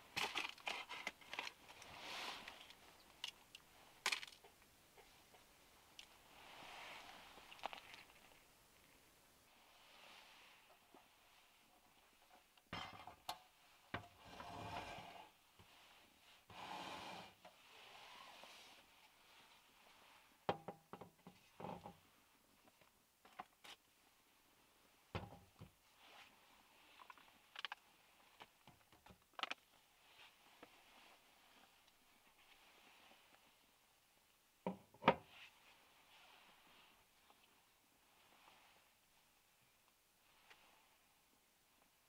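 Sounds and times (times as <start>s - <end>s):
objects sliding and handling noise: 0.0s - 4.4s, 5.0s - 8.5s, 14.0s - 20.4s, 25.6s - 27.4s, 30.0s - 33.6s.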